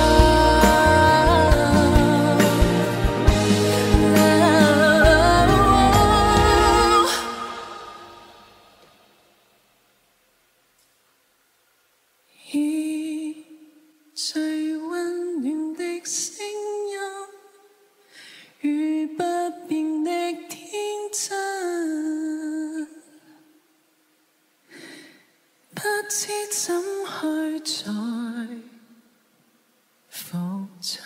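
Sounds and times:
woman singing unaccompanied: 0.0s - 8.5s, 12.3s - 17.7s, 18.6s - 23.4s, 25.7s - 29.0s, 30.1s - 31.0s.

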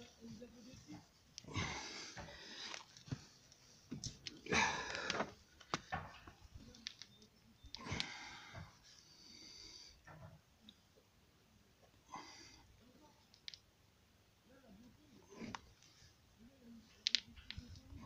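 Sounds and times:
person breathing heavily: 4.4s - 5.4s, 7.8s - 10.0s
small clicks: 6.6s - 8.1s, 13.3s - 13.7s.

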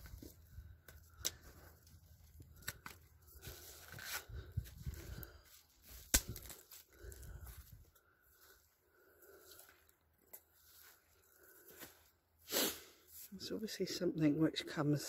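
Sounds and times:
footsteps through grass and twigs: 0.0s - 12.2s
twigs snapping: 0.8s - 3.1s, 5.8s - 7.2s.

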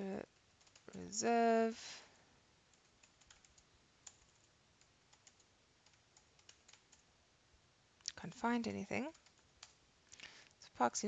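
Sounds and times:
keyboard typing clicks: 0.4s - 1.1s, 2.7s - 7.1s, 9.1s - 9.8s.

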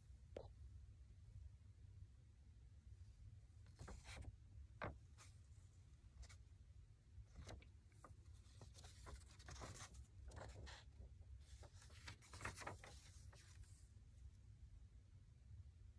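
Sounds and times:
newspaper rustling and crinkling: 3.8s - 5.3s, 7.3s - 13.8s.

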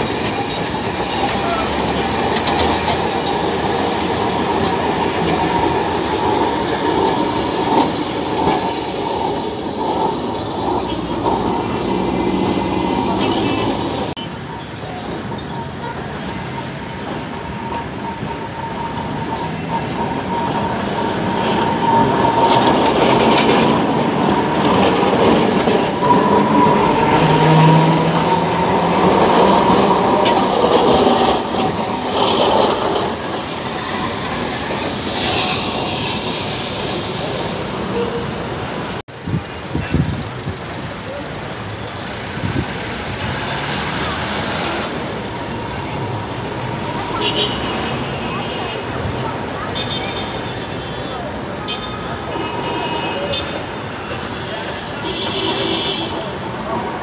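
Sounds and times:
tram wheels rumbling on rails: 0.0s - 57.0s.

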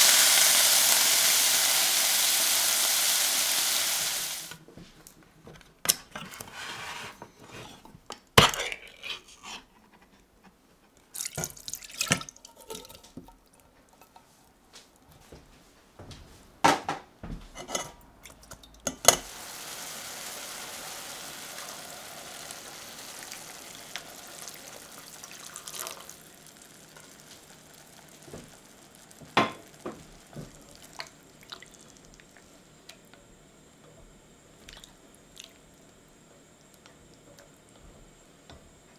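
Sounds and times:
juice running into metal sieve: 0.0s - 4.6s, 11.1s - 14.1s, 19.1s - 32.5s.

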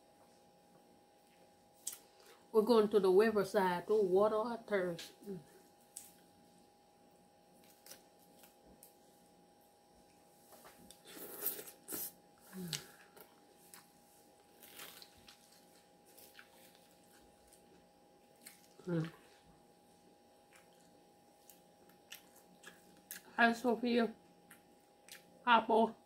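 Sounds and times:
crunching lettuce: 7.6s - 9.0s, 10.8s - 19.2s
person humming: 12.5s - 13.0s.

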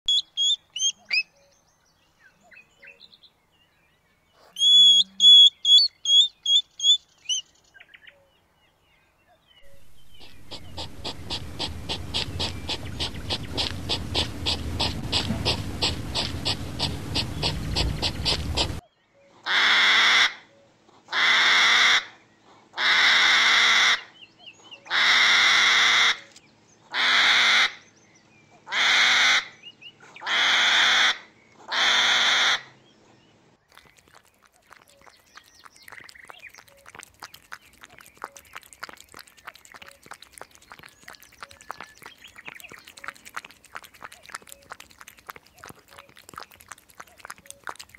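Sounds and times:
hedgehog chirps: 9.6s - 18.8s, 33.7s - 47.9s
hedgehog pulsing: 9.6s - 18.8s, 33.8s - 47.9s
hedgehog hissing huffs: 9.7s - 18.8s.

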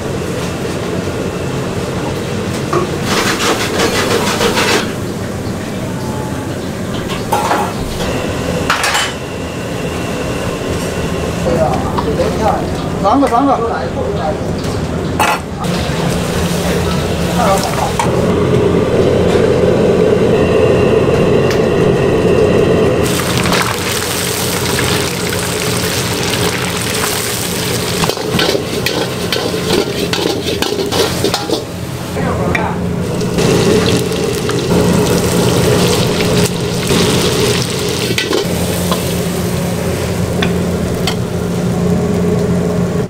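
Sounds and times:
steady low hum: 4.9s - 43.0s
food sizzling in a wok: 23.0s - 32.2s, 33.1s - 41.2s
metal spatula scraping pan: 28.0s - 31.7s.

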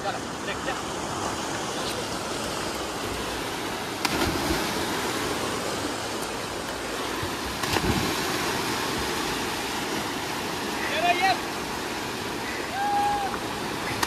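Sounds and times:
river rushing: 0.0s - 14.0s
swimmers splashing into water: 4.0s - 5.4s.

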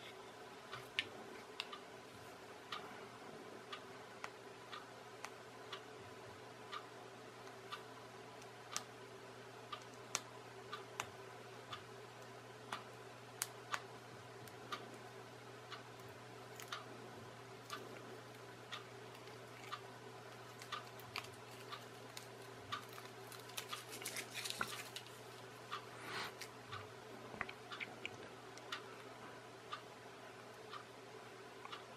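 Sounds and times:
faint steady hum: 0.0s - 31.9s
regular ticking: 0.4s - 31.9s
rustling: 21.0s - 25.2s.

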